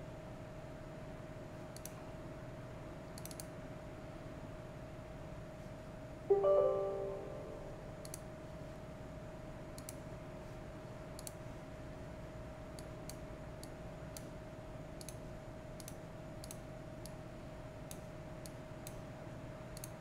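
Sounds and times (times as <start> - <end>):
computer mouse clicking: 1.7 - 2.0, 3.2 - 3.5, 8.0 - 8.3, 9.8 - 10.0, 11.2 - 11.4, 12.8 - 14.3, 15.0 - 15.2, 15.8 - 17.2, 19.8 - 20.0
steady faint tone: 6.3 - 8.1.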